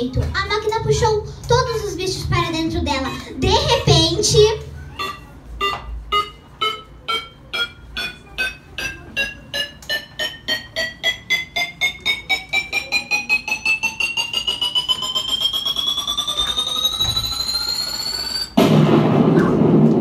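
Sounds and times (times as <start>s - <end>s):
rising electronic beeps: 4.9s - 18.6s.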